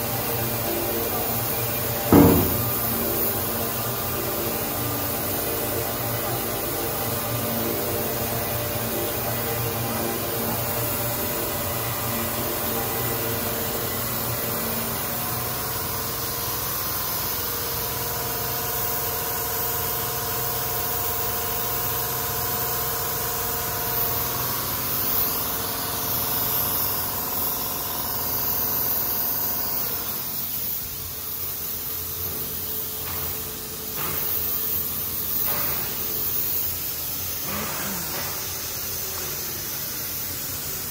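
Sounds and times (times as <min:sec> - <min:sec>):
machine hum: 0:00.0 - 0:16.4.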